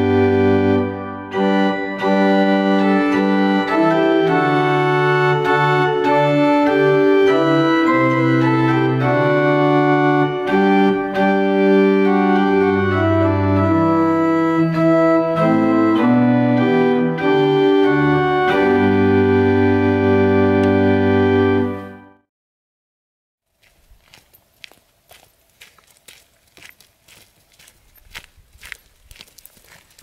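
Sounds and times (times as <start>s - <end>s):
church pipe organ playing chords: 0.0s - 22.2s.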